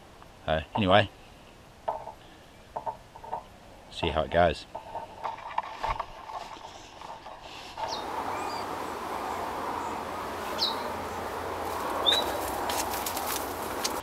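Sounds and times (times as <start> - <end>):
tripod knocking and clattering: 1.9 - 2.2, 2.8 - 3.5, 4.7 - 8.0
outdoor hiss: 6.8 - 14.0
high bird chirps: 7.8 - 11.3, 11.9 - 12.6.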